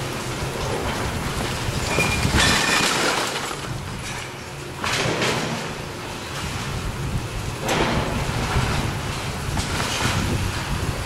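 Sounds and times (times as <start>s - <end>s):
brick walls crashing: 1.8s - 4.2s.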